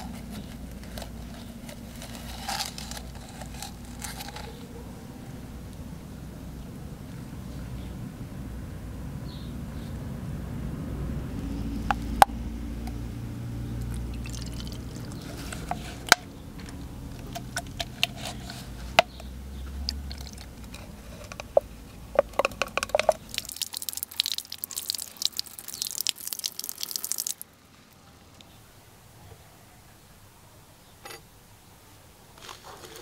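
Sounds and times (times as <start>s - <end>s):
liquid dripping and trickling: 13.8s - 15.4s, 19.8s - 20.8s, 22.7s - 27.4s
tap water running over metal: 22.2s - 27.4s.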